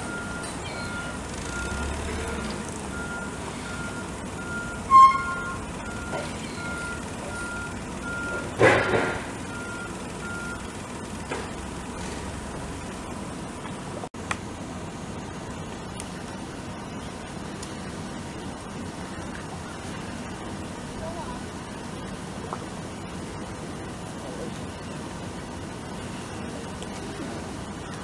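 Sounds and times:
reversing alarm beeping: 0.0 - 10.8
loud pitched squeal: 4.8 - 5.7
brief harsh noise: 4.9 - 5.7.

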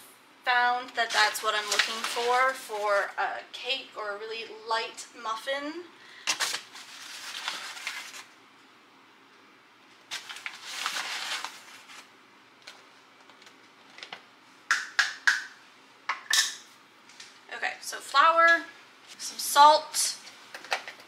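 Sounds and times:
plastic flour bag rustling: 0.9 - 3.2, 6.3 - 8.4, 10.0 - 14.1.

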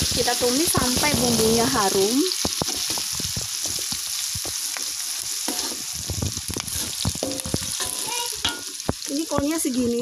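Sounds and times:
vegetables sizzling in hot oil: 0.0 - 10.0
metal spatula scraping a wok: 5.4 - 8.8.

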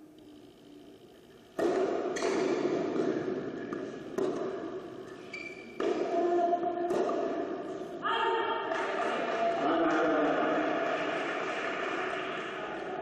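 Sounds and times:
tennis ball struck by rackets: 1.6 - 4.8, 5.6 - 7.7.

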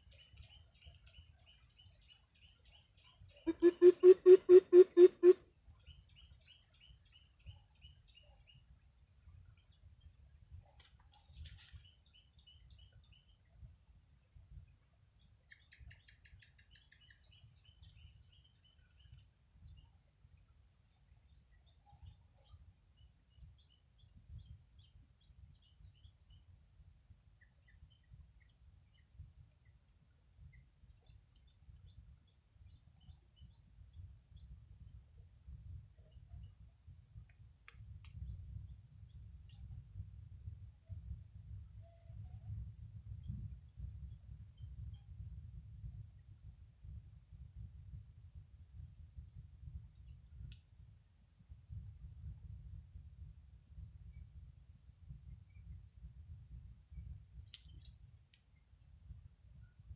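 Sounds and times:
bird chirps: 0.0 - 8.7.

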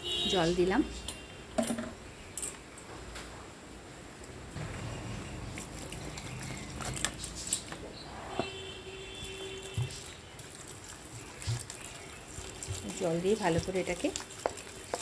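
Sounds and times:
water pouring through colander: 9.4 - 15.0.

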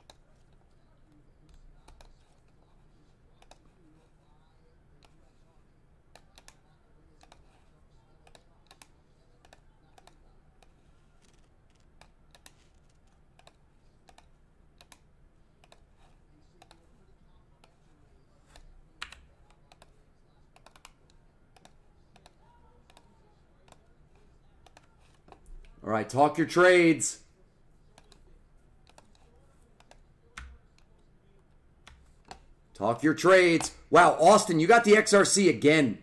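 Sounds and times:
keyboard typing and clicking: 6.1 - 6.6, 8.2 - 15.0, 20.5 - 23.1.

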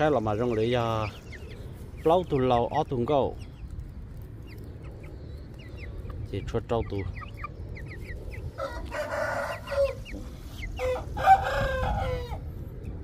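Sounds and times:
chicks peeping: 0.0 - 13.0
rooster crowing: 8.6 - 10.2, 10.8 - 12.5.

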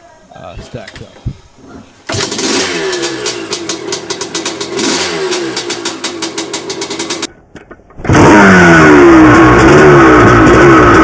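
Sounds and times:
dirt bike engine revving: 2.1 - 7.3, 8.0 - 11.0
two-stroke engine idling: 2.1 - 7.3.

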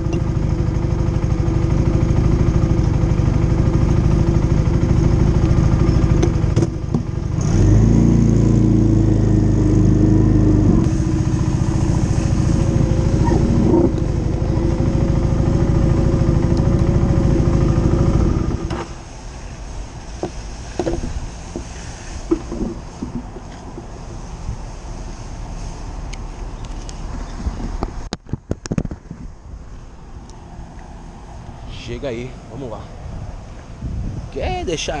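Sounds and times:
motorcycle engine running: 0.0 - 19.4.

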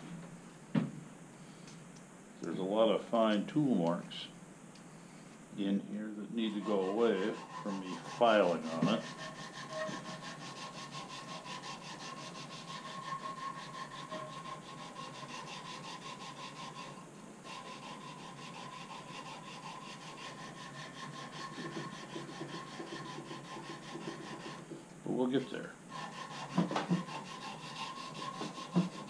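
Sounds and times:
faint steady hum: 0.0 - 29.0
hand rubbing on metal: 5.9 - 24.8, 25.9 - 29.0.

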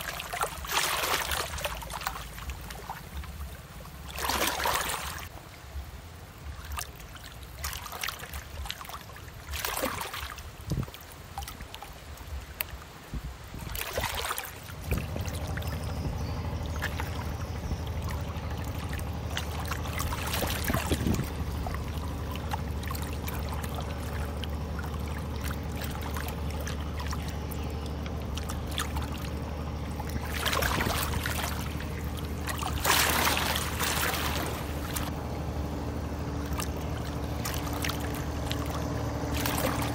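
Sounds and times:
low engine drone: 0.0 - 6.8, 13.8 - 39.9
water rushing past ship's bow: 0.0 - 39.9.

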